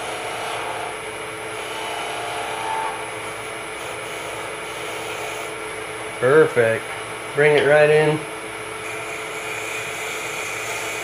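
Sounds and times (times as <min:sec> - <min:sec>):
turning tool cutting wood: 0:00.0 - 0:05.6, 0:08.8 - 0:11.0
wood lathe motor hum: 0:00.0 - 0:11.0.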